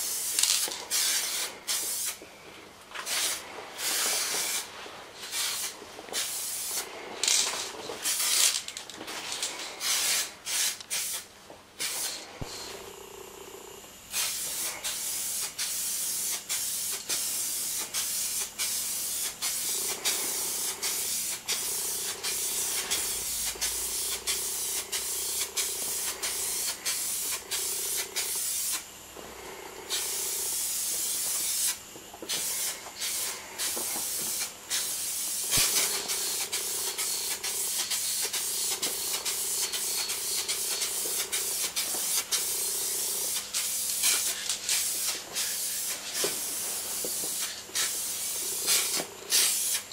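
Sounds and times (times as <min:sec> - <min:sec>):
spray paint can hissing: 0:00.0 - 0:02.2, 0:03.0 - 0:08.6, 0:09.8 - 0:12.5, 0:14.1 - 0:28.8, 0:29.9 - 0:49.9.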